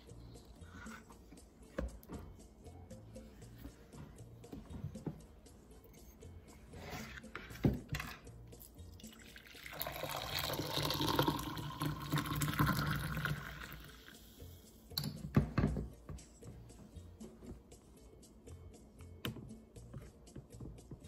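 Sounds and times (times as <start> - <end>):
coffee pouring into mug: 9.0 - 14.2.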